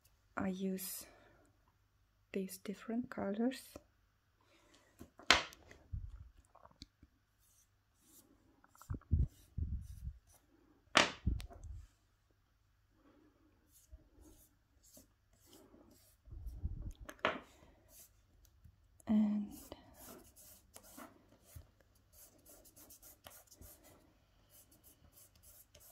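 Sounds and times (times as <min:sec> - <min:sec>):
pastel rubbing on foam: 0:13.7 - 0:16.6.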